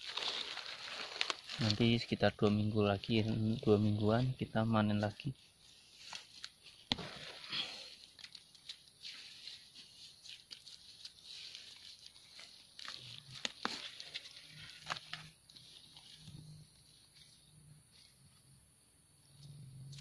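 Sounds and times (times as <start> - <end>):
rustling of dry leaf litter: 0.0 - 18.2.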